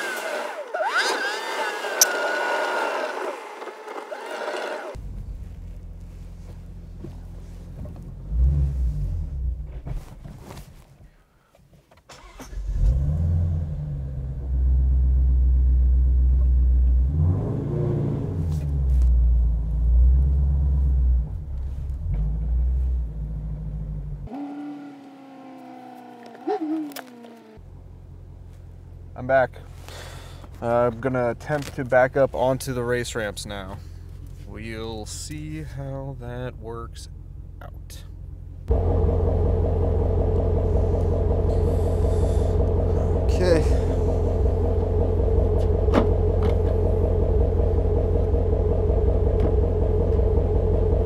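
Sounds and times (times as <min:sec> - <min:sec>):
car engine heard from inside cabin: 0:04.9 - 0:10.8, 0:12.7 - 0:29.9, 0:30.5 - 0:51.0.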